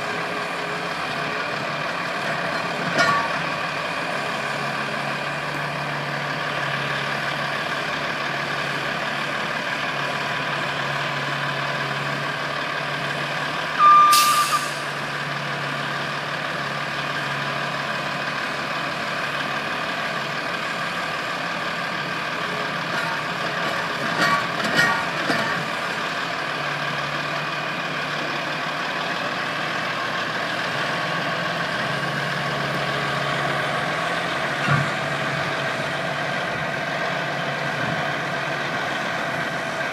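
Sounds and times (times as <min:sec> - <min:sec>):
diesel engines running: 0:00.0 - 0:39.9
backup alarm beeping: 0:13.8 - 0:14.7
air brake hiss: 0:14.1 - 0:14.9.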